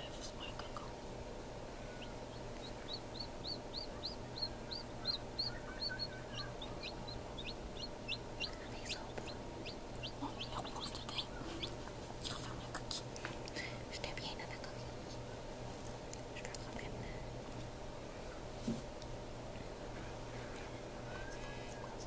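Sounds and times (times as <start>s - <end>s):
steady low hum: 0.0s - 22.0s
chick peeping: 1.8s - 12.4s.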